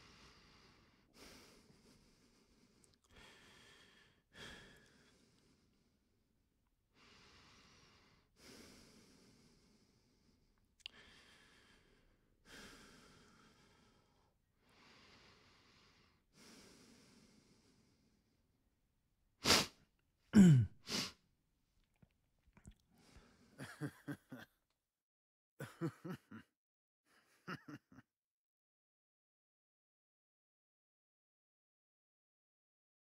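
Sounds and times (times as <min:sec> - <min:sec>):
sneeze-like bursts: 0:19.4 - 0:19.8.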